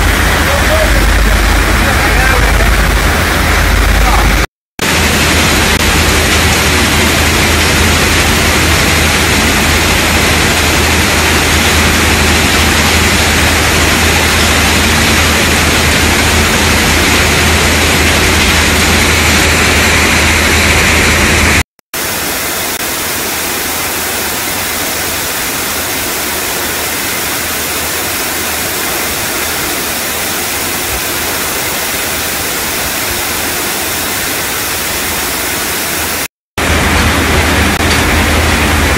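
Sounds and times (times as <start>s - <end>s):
low hum: 0.0s - 21.6s
filter press machinery running: 0.0s - 35.4s, 36.0s - 38.9s.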